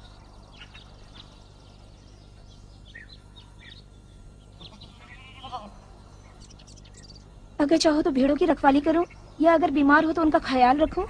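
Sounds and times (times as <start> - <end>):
small birds chirping: 0.0 - 11.0
sheep bleating: 4.6 - 5.9.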